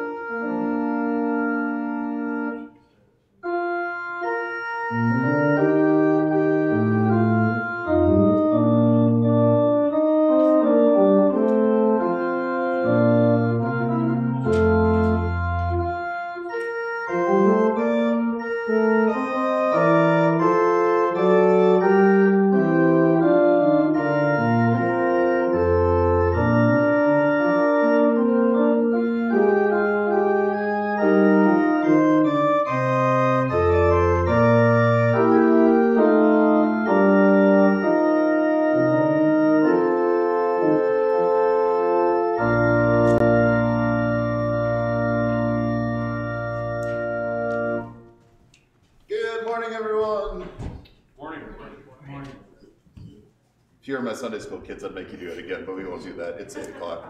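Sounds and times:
slow organ music: 0:00.0 - 0:49.8.

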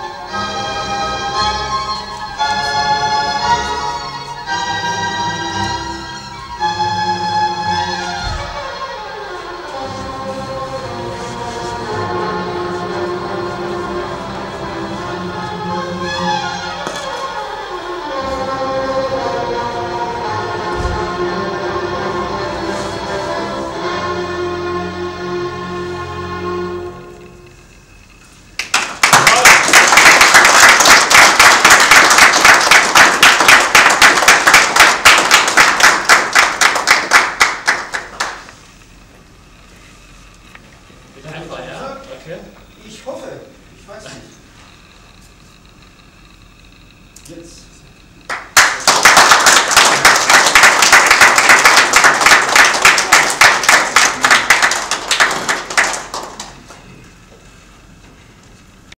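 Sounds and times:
audience applauding: 0:28.5 - 0:39.0, 0:48.3 - 0:57.1.

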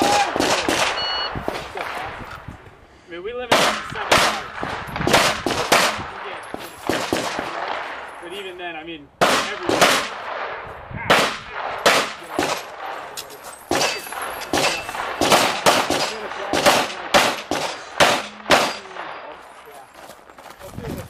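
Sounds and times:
handgun shots with echo: 0:13.7 - 0:19.1.

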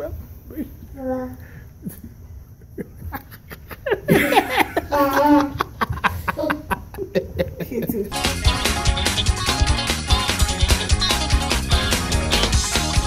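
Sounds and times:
music: 0:08.1 - 0:13.0.

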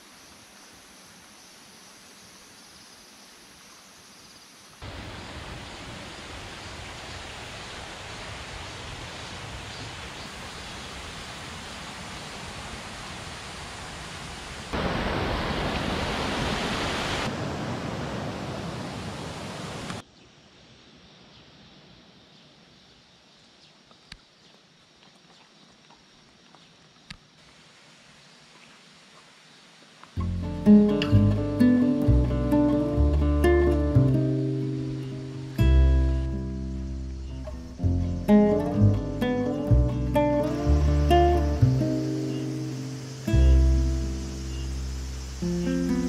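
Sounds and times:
faint outdoor hiss: 0:00.0 - 0:46.0
stream rushing over rocks: 0:04.8 - 0:20.0, 0:27.4 - 0:46.0.

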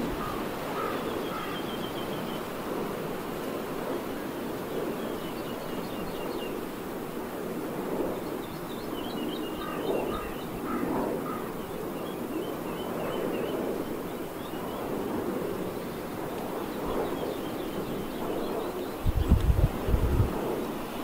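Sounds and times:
distant wind turbines whooshing: 0:00.0 - 0:21.0
small birds chirping: 0:08.2 - 0:14.8.

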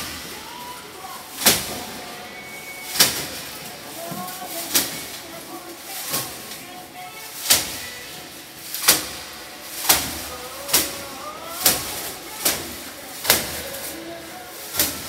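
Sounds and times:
branches smacking against canvas: 0:02.8 - 0:06.7, 0:07.3 - 0:15.0.

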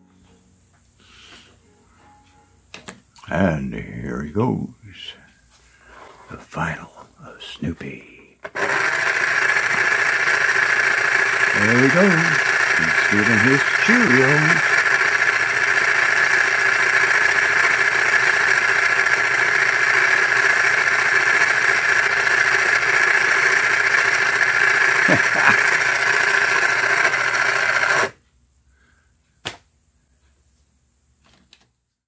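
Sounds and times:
toy car motor running: 0:08.4 - 0:28.2.

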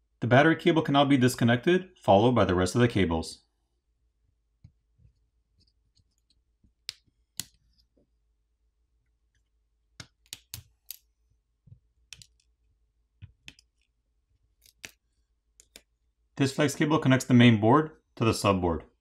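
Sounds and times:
small sharp plastic clicks: 0:10.0 - 0:11.1, 0:14.6 - 0:15.0, 0:15.6 - 0:15.9.

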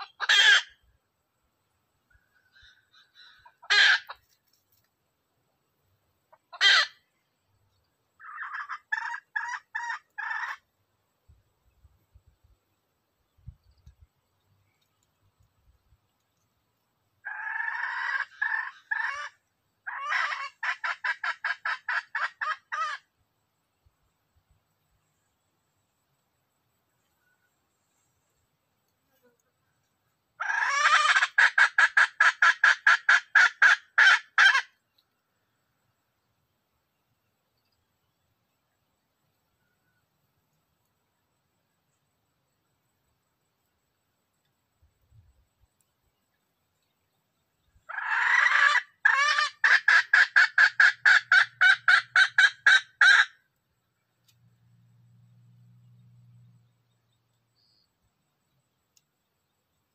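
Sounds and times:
junglefowl clucking: 0:00.0 - 0:00.8, 0:02.1 - 0:04.4, 0:06.3 - 0:07.1, 0:08.2 - 0:10.7, 0:17.2 - 0:23.1, 0:30.4 - 0:34.8, 0:47.9 - 0:53.4
junglefowl harsh call: 0:00.0 - 0:00.8, 0:02.4 - 0:04.3, 0:06.3 - 0:07.1, 0:08.2 - 0:10.6, 0:17.2 - 0:23.1, 0:30.4 - 0:34.8, 0:47.9 - 0:53.4
rooster calling: 0:30.4 - 0:34.7.

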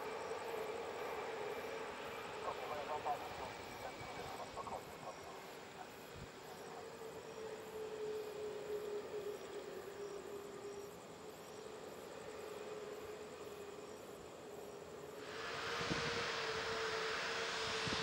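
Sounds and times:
jet engines idling: 0:15.0 - 0:18.0.

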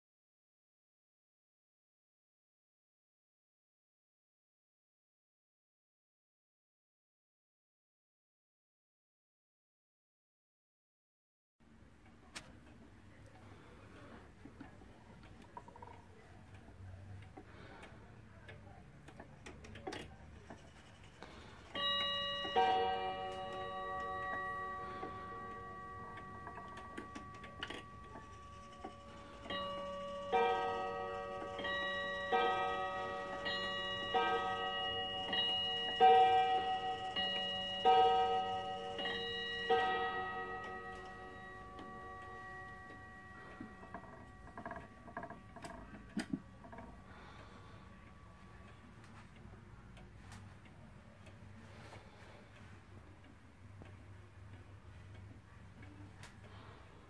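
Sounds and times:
light clicks of clock hands: 0:12.0 - 0:57.0
clock ticking: 0:14.2 - 0:57.0
clock striking two bells: 0:21.7 - 0:49.4.

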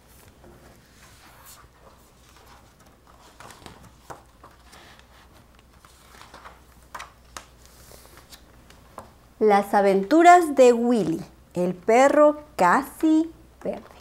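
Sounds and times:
book pages turning: 0:00.0 - 0:09.1.

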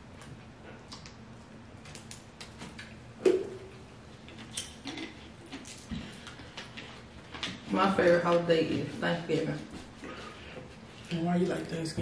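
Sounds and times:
clicks and crackles of food handling: 0:01.8 - 0:03.0, 0:04.2 - 0:07.7.

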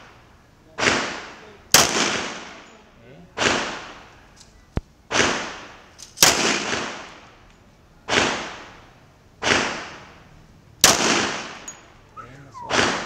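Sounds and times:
pistol shots with echo: 0:00.8 - 0:02.7, 0:03.4 - 0:04.0, 0:05.1 - 0:07.2, 0:09.4 - 0:10.1, 0:10.8 - 0:11.8.

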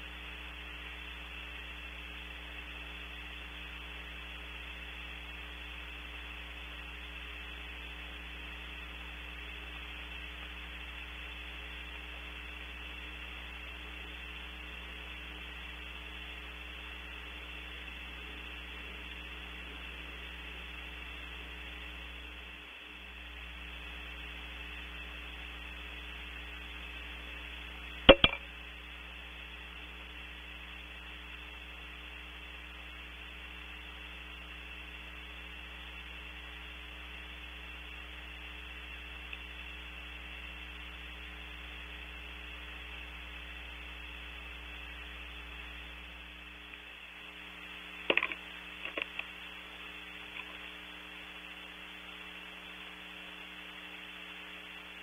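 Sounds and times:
electrical hum and hiss: 0:00.0 - 0:55.0
sharp knocks: 0:28.1 - 0:28.4.

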